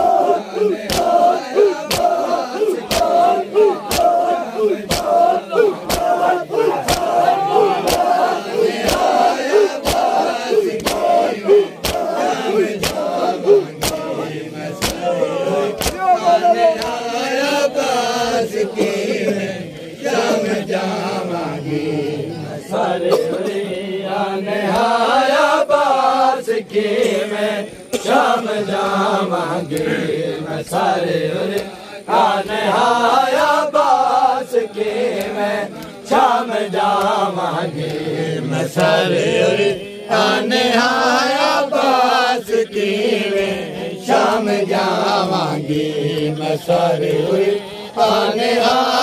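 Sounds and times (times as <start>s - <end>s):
men chanting a lament: 0.0s - 49.0s
chest-beating slaps: 0.6s - 16.1s, 16.8s - 17.0s, 31.5s - 31.8s.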